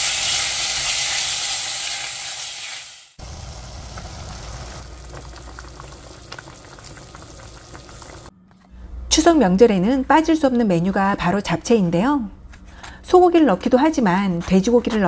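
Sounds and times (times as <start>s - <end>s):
meat sizzling in oil: 0.0s - 8.3s
stew bubbling and popping: 3.2s - 8.3s.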